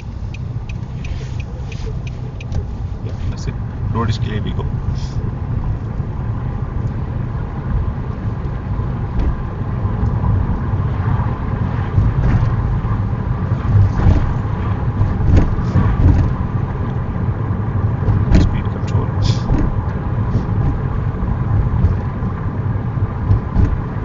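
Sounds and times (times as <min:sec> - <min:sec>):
car engine and tyre rumble: 0:00.0 - 0:24.0.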